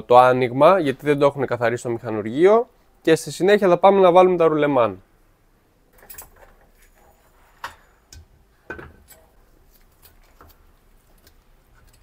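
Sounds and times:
metallic clinks and knocks: 0:05.9 - 0:07.9.

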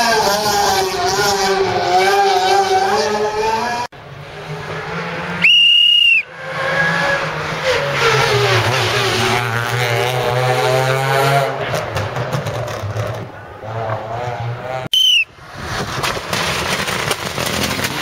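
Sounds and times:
rally car engine passing: 0:00.0 - 0:05.5, 0:06.2 - 0:18.0
whistle blown: 0:05.4 - 0:06.3, 0:14.9 - 0:15.3.

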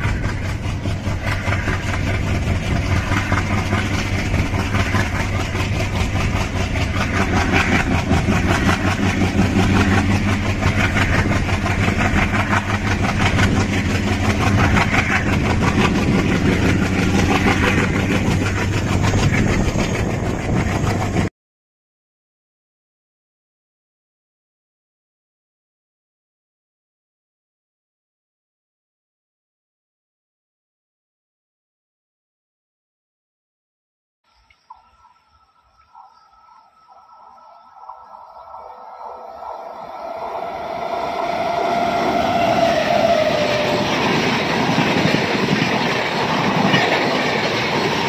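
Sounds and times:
diesel locomotive engine: 0:00.0 - 0:21.3, 0:34.3 - 0:48.0.

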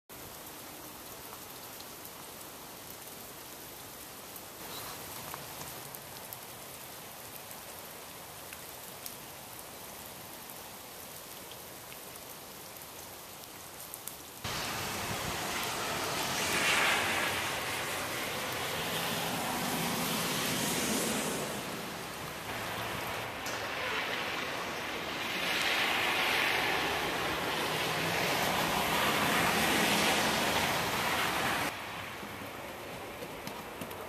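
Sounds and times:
freezing rain hissing: 0:00.1 - 0:34.0.

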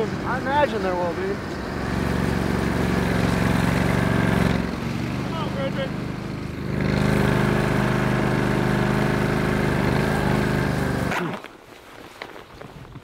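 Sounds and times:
small engine running: 0:00.0 - 0:11.5.

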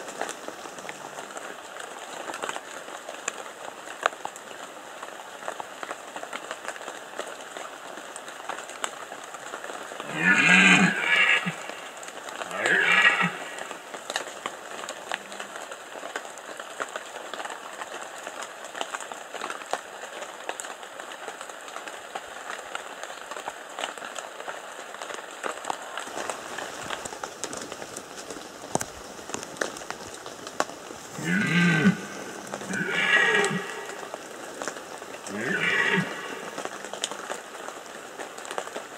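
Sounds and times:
rain pattering on leaves: 0:00.0 - 0:38.9
deer roaring: 0:10.0 - 0:13.8, 0:31.1 - 0:34.2, 0:35.2 - 0:37.0.

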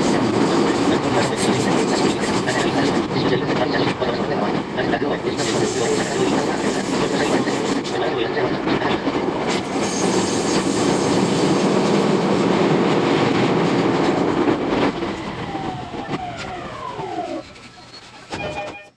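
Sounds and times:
train running noise: 0:00.0 - 0:18.9.

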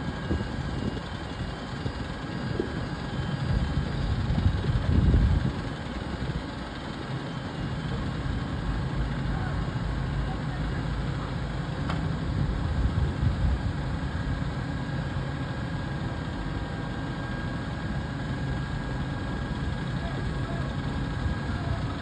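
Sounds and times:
diesel engine idling: 0:00.0 - 0:22.0.

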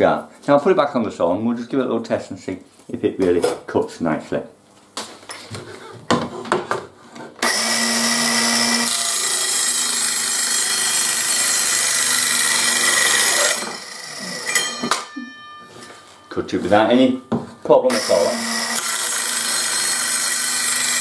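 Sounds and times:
circular saw cutting board: 0:07.4 - 0:17.1, 0:17.8 - 0:21.0.

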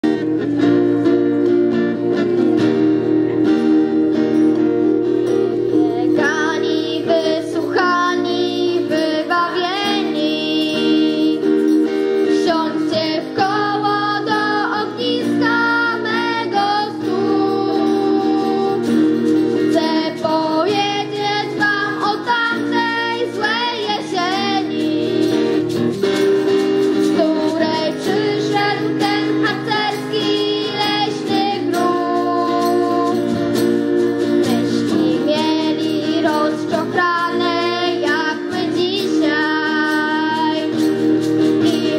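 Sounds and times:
strummed acoustic guitar: 0:00.0 - 0:41.9
girls singing: 0:05.7 - 0:11.5, 0:12.3 - 0:18.9, 0:19.7 - 0:25.6, 0:27.2 - 0:33.3, 0:34.4 - 0:40.8, 0:41.6 - 0:41.9.

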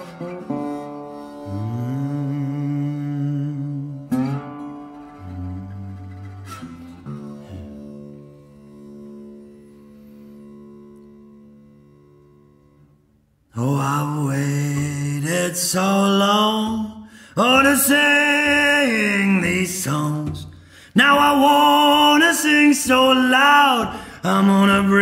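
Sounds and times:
man singing blues: 0:01.4 - 0:06.9, 0:13.5 - 0:25.0.

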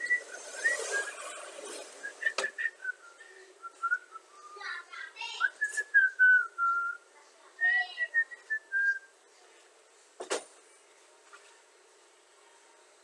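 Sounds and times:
person whistling a tune: 0:00.0 - 0:01.4, 0:02.0 - 0:04.7, 0:05.4 - 0:07.0.

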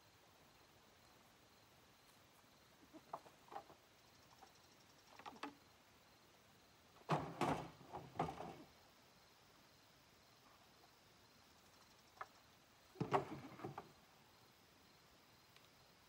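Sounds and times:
clatter of knocks: 0:07.0 - 0:08.6.

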